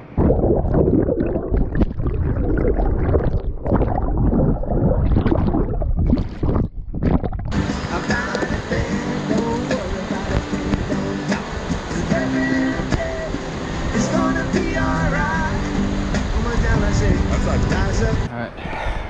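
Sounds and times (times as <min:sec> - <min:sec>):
muffled underwater rushing water: 0:00.0 - 0:18.3
background music: 0:07.6 - 0:18.3.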